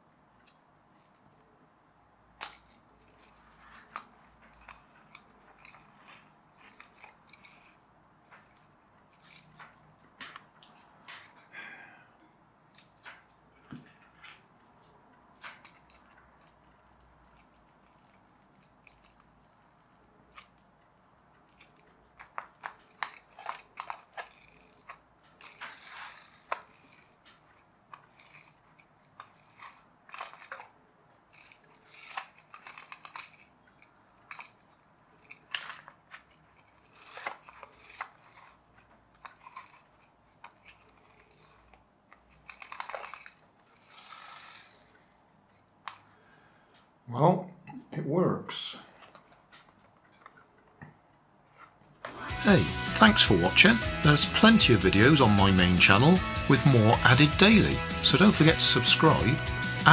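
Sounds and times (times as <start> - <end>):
clicks and scrapes: 2.4 - 11.5, 12.6 - 46.1.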